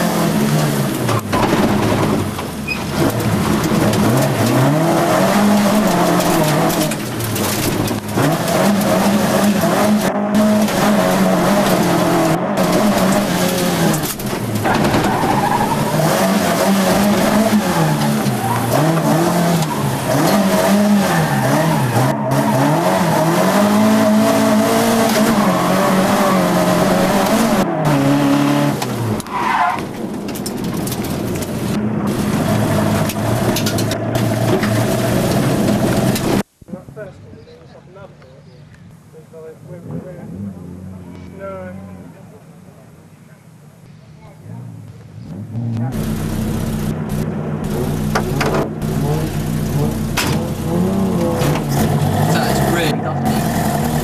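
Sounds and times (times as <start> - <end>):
rally car engine revving: 0.0 - 36.5, 44.6 - 54.0.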